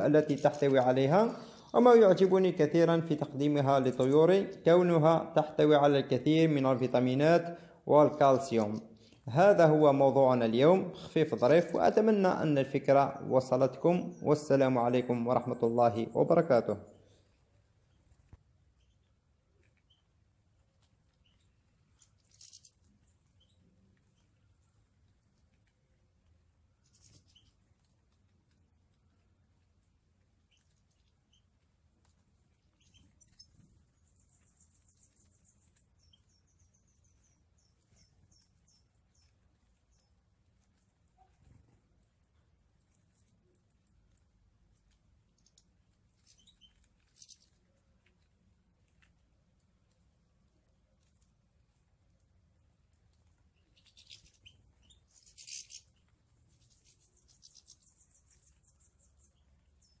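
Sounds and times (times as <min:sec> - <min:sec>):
goldfinches chirping: 0:32.8 - 0:40.2, 0:53.5 - 1:00.0
finches twittering and chirping: 0:53.6 - 1:00.0.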